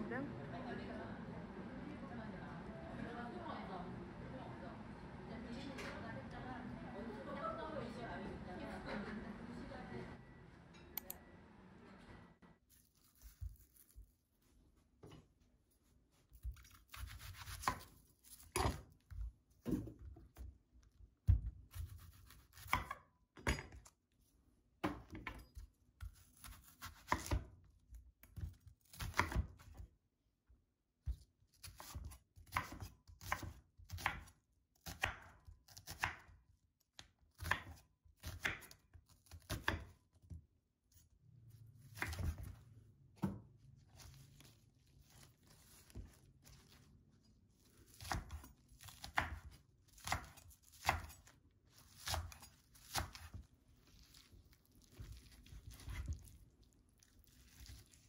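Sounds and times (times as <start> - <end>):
knife slicing onion on wooden board: 16.2 - 19.1, 21.3 - 23.1, 24.8 - 27.6, 28.3 - 29.8, 31.0 - 36.4, 37.0 - 40.0, 41.8 - 42.6, 47.8 - 53.4.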